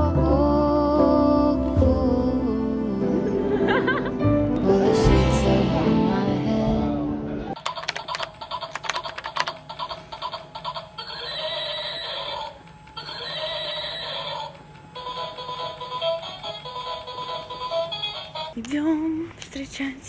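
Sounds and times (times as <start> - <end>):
pop song: 0.0 - 3.6, 4.4 - 7.6
toy clicks: 7.6 - 18.5
electronic toy whinnies: 8.0 - 18.5.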